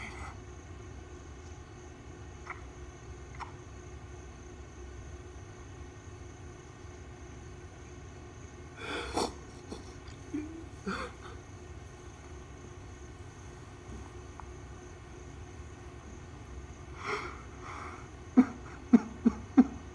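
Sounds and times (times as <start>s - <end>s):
low room hum: 0.0s - 19.9s.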